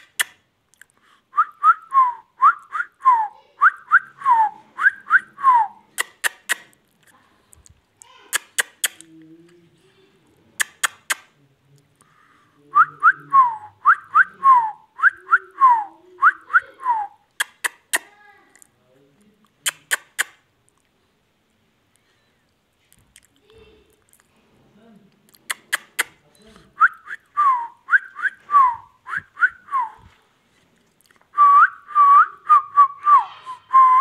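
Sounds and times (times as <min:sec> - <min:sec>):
sharp clicks: 0:00.0 - 0:00.8, 0:06.0 - 0:06.8, 0:08.0 - 0:09.1, 0:10.6 - 0:11.3, 0:17.3 - 0:18.1, 0:19.6 - 0:20.4, 0:25.3 - 0:26.2.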